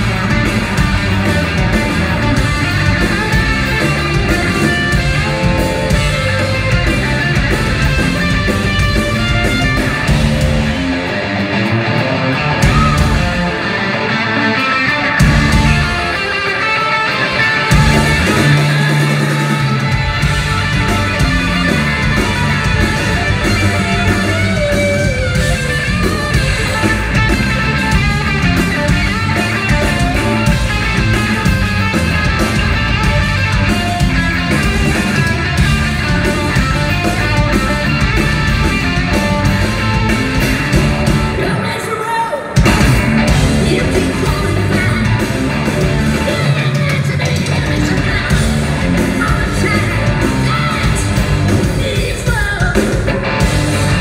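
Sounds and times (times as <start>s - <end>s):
drums: 0.0s - 54.0s
electric guitar: 0.0s - 54.0s
person singing lead vocal: 41.4s - 42.6s, 43.3s - 45.3s, 46.2s - 53.0s.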